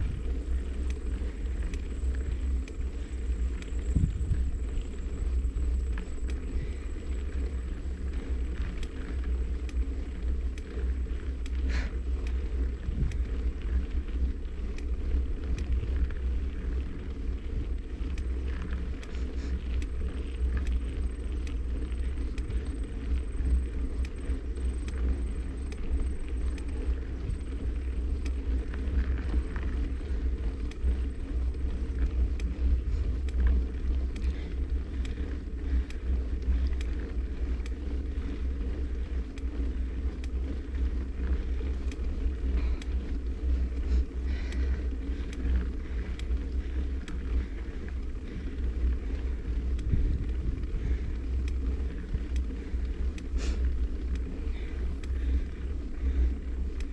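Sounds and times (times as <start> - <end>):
wind buffeting: 0.0 - 1.6, 3.2 - 7.7, 43.6 - 53.0
faint ticks and rattles: 0.0 - 56.9
road vibration rumble: 0.0 - 56.9.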